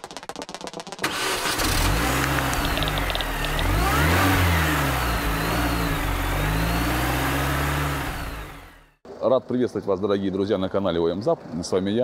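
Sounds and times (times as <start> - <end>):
car engine starting and revving: 1.0 - 9.0.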